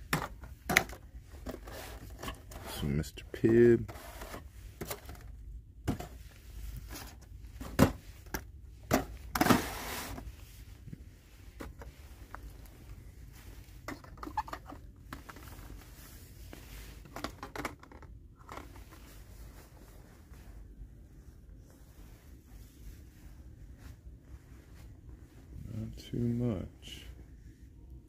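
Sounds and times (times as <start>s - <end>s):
toy boxes knocking and clicking: 0.0s - 2.6s, 13.8s - 15.5s, 17.1s - 18.8s.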